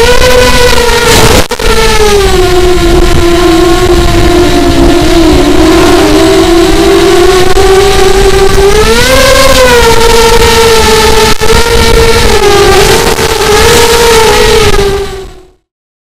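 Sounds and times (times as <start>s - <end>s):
drone propellers whining: 0.0s - 15.6s
wind noise on microphone: 0.0s - 15.6s.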